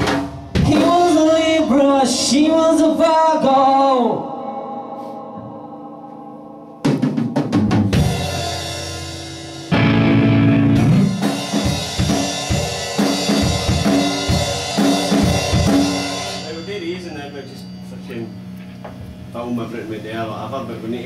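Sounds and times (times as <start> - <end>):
live rock band playing: 0.0 - 3.0, 6.8 - 19.3
ringing guitar chord: 4.3 - 11.3
drum fill: 6.8 - 16.5.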